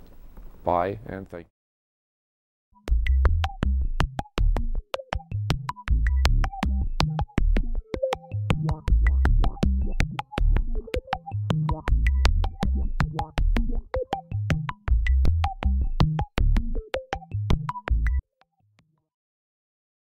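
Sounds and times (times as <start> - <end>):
deep synthesizer bass line: 2.8 - 18.2
drum machine beat: 2.9 - 18.2.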